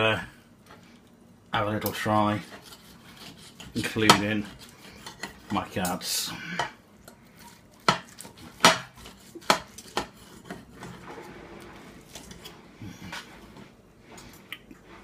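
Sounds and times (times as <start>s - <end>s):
knife and fork scraping a plate: 2.0s - 6.0s, 7.4s - 13.2s.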